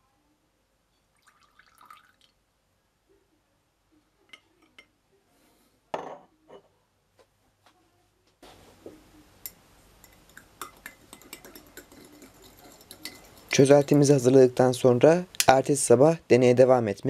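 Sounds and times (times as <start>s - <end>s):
water trickling into a beaker: 1.0s - 2.4s.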